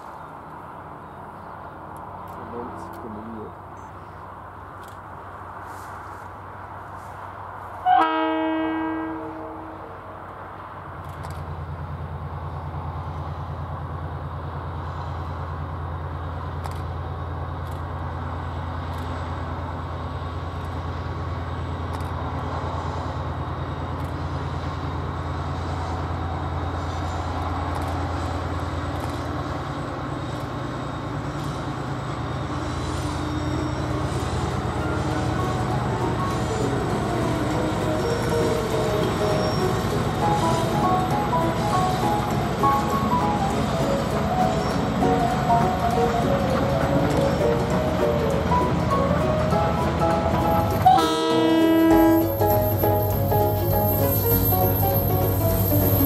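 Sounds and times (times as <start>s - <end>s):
diesel locomotive engine running: 0.0s - 56.0s
train horn toot: 7.8s - 10.0s, 50.6s - 56.0s.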